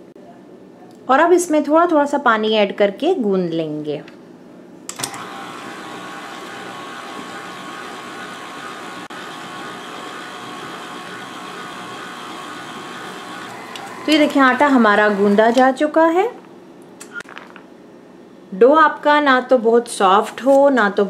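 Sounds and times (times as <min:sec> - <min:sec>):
stand mixer motor running: 0:05.1 - 0:15.6.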